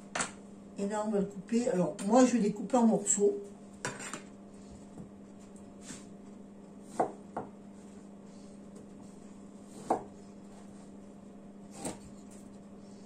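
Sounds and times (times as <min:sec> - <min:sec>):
knife cutting on plastic board: 0:11.7 - 0:12.4.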